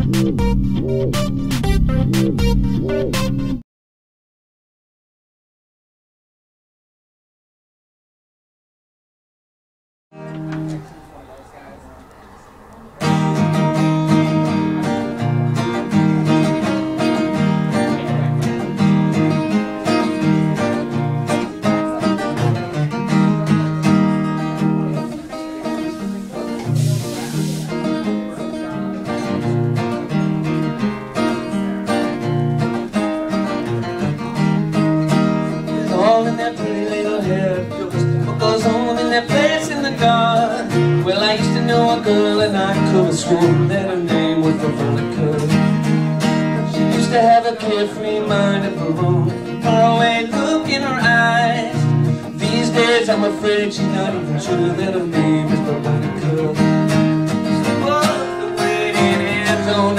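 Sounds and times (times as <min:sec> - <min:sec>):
acoustic guitar: 0:00.0 - 0:03.6, 0:10.1 - 0:59.9
man singing: 0:35.6 - 0:59.9.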